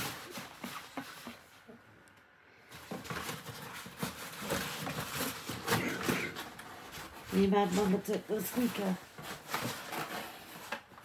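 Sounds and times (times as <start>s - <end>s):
dog rummaging in cardboard box: 0.0s - 1.6s, 2.7s - 11.0s
paper crinkling: 2.7s - 11.0s.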